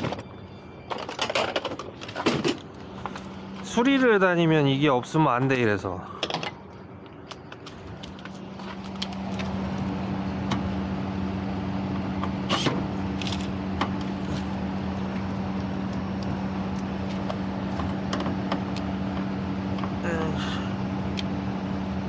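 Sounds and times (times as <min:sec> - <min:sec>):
motor hum: 0:00.0 - 0:05.2, 0:05.8 - 0:22.0.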